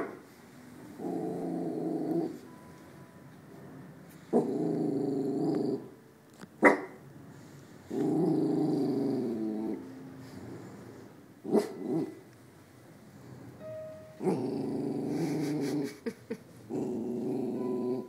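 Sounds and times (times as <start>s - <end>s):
puppy growling: 1.0s - 2.4s, 4.3s - 6.0s, 7.9s - 9.9s, 11.4s - 12.2s, 14.2s - 18.0s
puppy barking: 6.6s - 7.0s.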